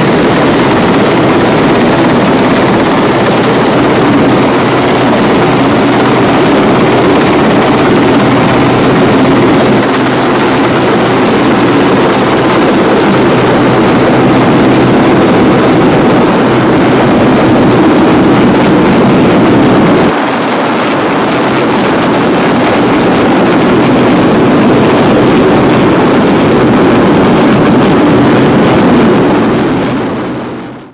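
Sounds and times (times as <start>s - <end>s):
boat engines running: 0.0s - 28.3s
helicopter rotor noise: 0.0s - 30.9s.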